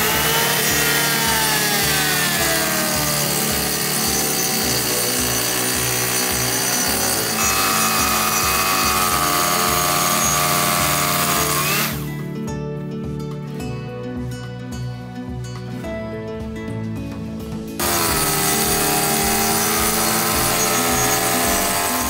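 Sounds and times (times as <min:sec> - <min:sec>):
circular saw cutting wood: 0:00.0 - 0:12.1, 0:17.8 - 0:22.0.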